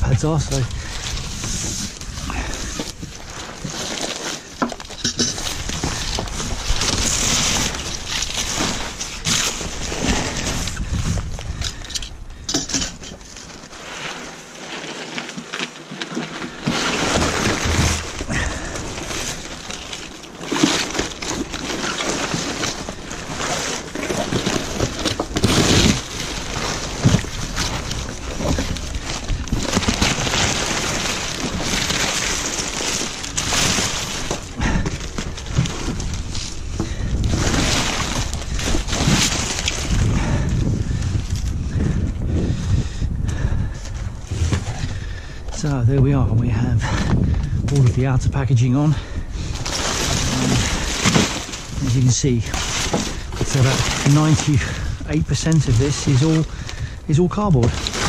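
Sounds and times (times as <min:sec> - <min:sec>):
paper and cardboard crumpling: 0:00.0 - 0:11.8, 0:12.7 - 0:41.6, 0:48.9 - 0:58.0
paper tearing: 0:49.7 - 0:51.9.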